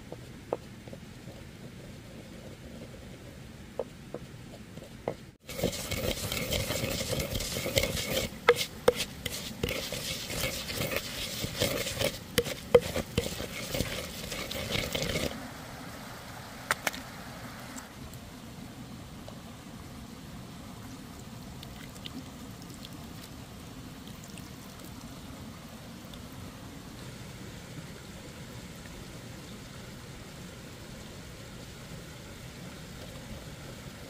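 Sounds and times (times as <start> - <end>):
pestle grinding in wooden mortar: 0.0 - 15.4.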